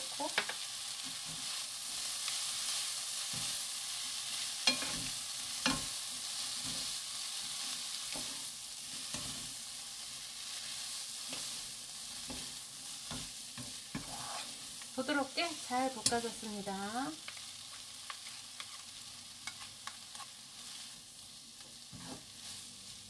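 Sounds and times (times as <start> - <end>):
food sizzling in oil: 0.0 - 23.0.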